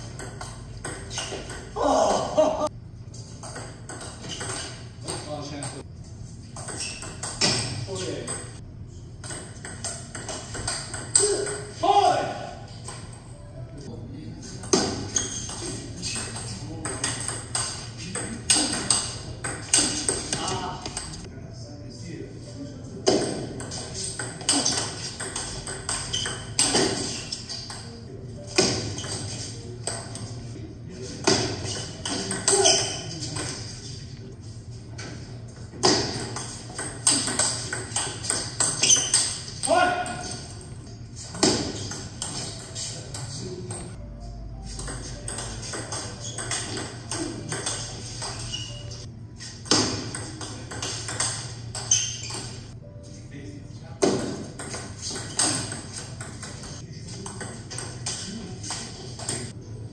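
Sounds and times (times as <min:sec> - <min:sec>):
table tennis ball hits: 0:00.0 - 0:01.8, 0:03.4 - 0:05.8, 0:06.6 - 0:08.6, 0:09.2 - 0:11.8, 0:14.6 - 0:21.2, 0:23.1 - 0:27.9, 0:31.2 - 0:33.6, 0:35.8 - 0:40.7, 0:41.3 - 0:42.8, 0:44.8 - 0:48.8, 0:49.6 - 0:52.6, 0:54.0 - 0:59.5.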